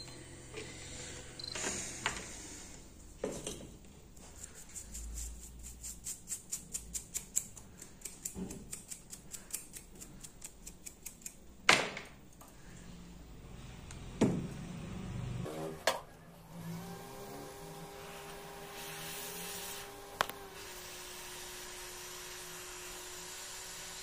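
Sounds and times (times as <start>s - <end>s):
small hard objects clicking: 6.5s - 11.4s.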